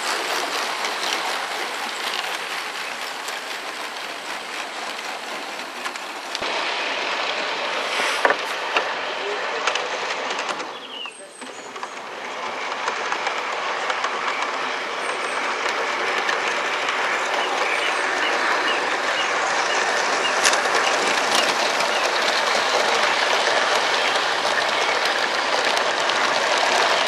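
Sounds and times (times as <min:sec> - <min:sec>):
model train wheels rumbling on rail: 0:00.0 - 0:27.0.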